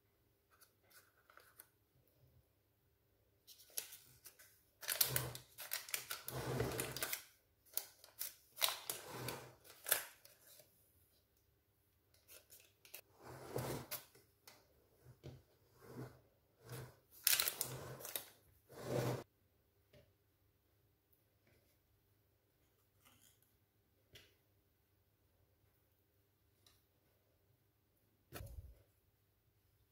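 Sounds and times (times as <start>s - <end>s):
parchment paper rustling: 3.5s - 10.7s, 17.0s - 18.4s.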